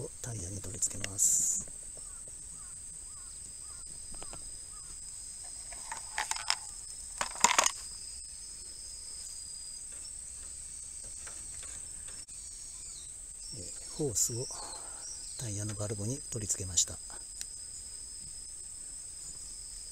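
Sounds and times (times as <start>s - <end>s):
insects droning: 0.0s - 19.9s
air hose rattling against plastic: 5.4s - 7.8s.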